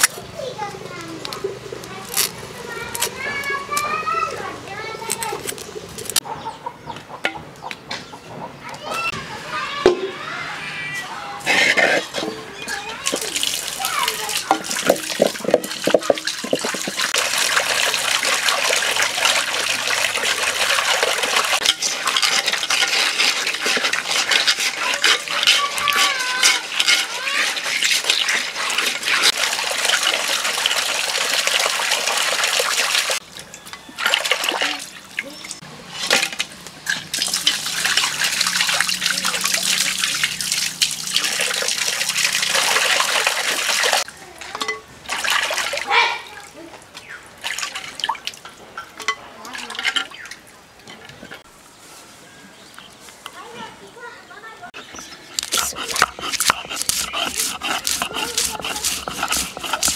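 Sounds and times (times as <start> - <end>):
fish scrubbed by hand: 11.4 - 12.4, 13.0 - 33.2, 54.8 - 59.9
water pouring into a bowl: 13.0 - 33.2, 37.1 - 44.1.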